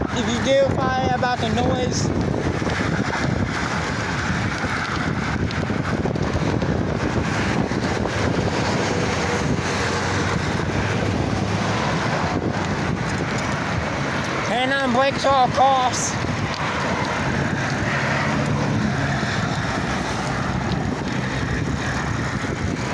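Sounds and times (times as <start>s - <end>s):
road traffic passing: 0.0s - 22.9s
wind over microphone: 0.0s - 22.9s.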